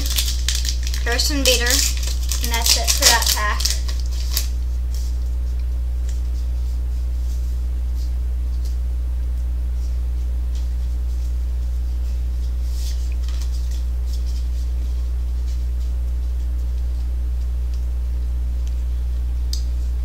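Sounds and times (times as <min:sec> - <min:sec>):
cards and foil wrapper rustling: 0:00.0 - 0:05.1, 0:12.6 - 0:14.7
steady low hum: 0:00.0 - 0:20.0.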